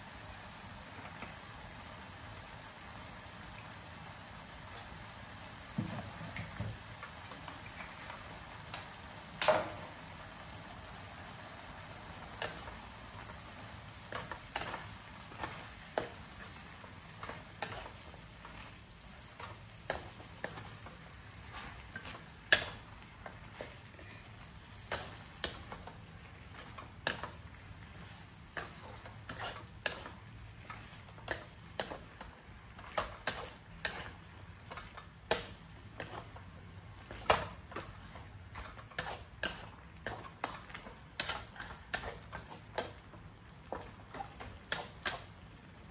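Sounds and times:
faint sizzle: 0.0s - 45.9s
wooden spatula knocking in wok: 5.7s - 6.9s.

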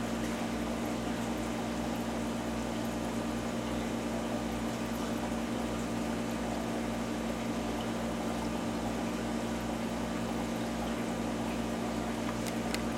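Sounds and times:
aquarium pumps humming: 0.0s - 12.9s
running water: 7.4s - 12.9s.

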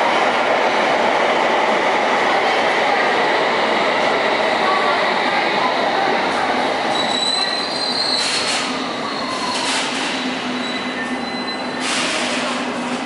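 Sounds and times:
train brakes squealing: 6.9s - 12.6s.

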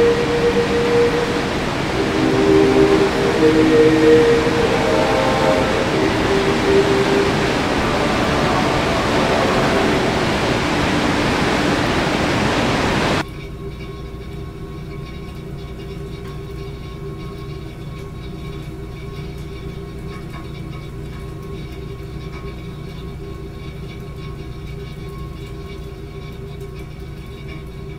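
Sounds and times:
waterfall rushing: 0.0s - 13.2s.

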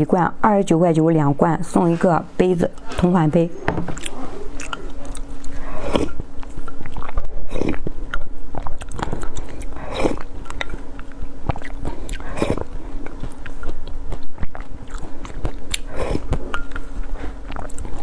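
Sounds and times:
soft chewing: 3.9s - 18.0s
person slurping paste: 5.4s - 6.2s, 6.9s - 7.8s, 8.6s - 10.3s, 11.5s - 13.4s, 14.4s - 16.4s.

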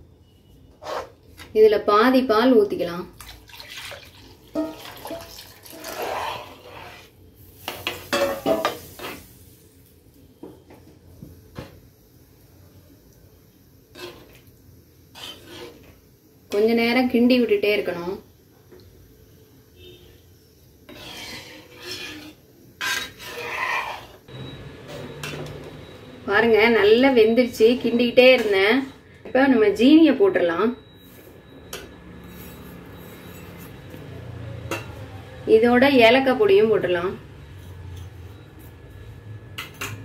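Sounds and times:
metal spatula scraping pan: 0.8s - 1.2s, 4.5s - 9.3s, 13.9s - 14.4s, 15.1s - 16.7s, 20.9s - 24.3s, 27.6s - 29.1s
milk splashing into metal pan: 3.2s - 6.0s.

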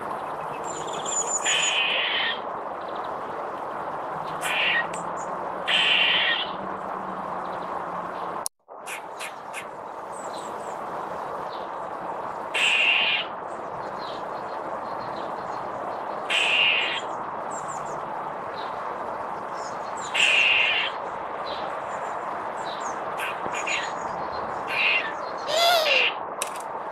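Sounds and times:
squirrel barking alarm calls: 1.1s - 2.4s, 4.4s - 5.0s, 5.7s - 6.6s, 8.9s - 9.7s, 12.6s - 13.3s, 16.3s - 17.1s, 20.0s - 21.0s, 23.2s - 24.0s, 24.6s - 26.2s.

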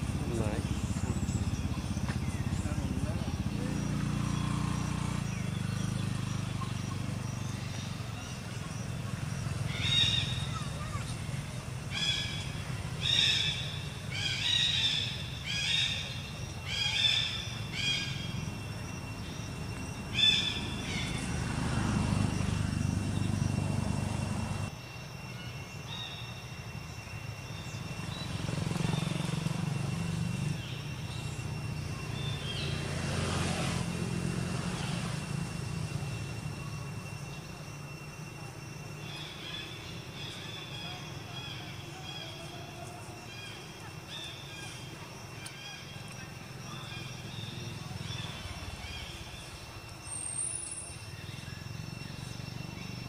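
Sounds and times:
passing vehicle rumble: 0.0s - 24.7s, 27.7s - 39.0s.

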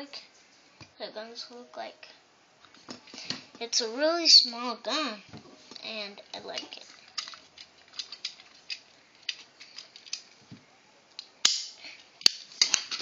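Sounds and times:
toy cap gun clicking: 11.4s - 12.8s
cap gun loud cracks: 11.4s - 12.9s.

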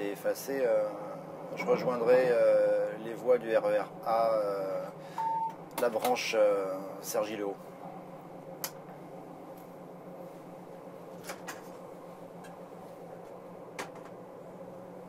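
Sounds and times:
electric train cab hum: 0.6s - 6.2s.

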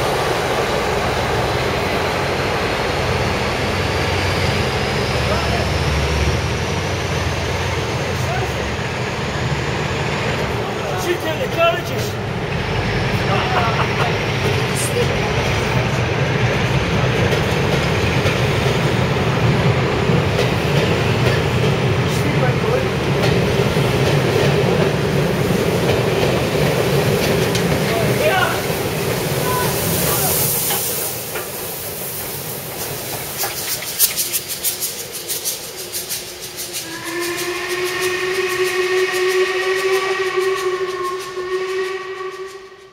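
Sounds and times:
steam locomotive chuffing: 0.0s - 42.9s
train wheels rumbling on rail: 0.0s - 42.9s
rail joint clicks: 10.1s - 42.9s
steam whistle blast: 36.6s - 42.9s.

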